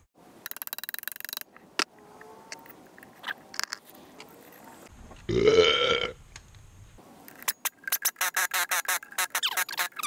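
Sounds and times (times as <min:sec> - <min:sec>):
tools and parts clicking: 0:00.4 - 0:04.7, 0:07.2 - 0:10.0.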